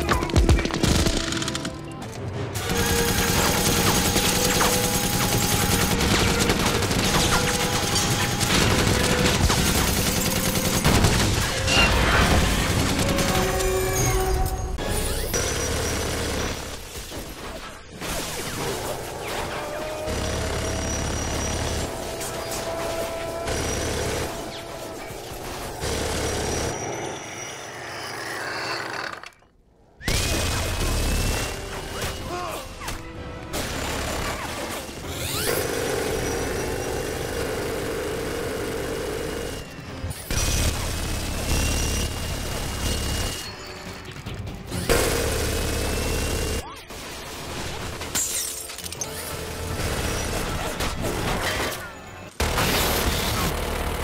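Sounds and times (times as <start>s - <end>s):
minigun firing rapid bursts: 2.6s - 11.4s, 20.1s - 22.1s, 35.5s - 43.5s, 44.9s - 48.1s.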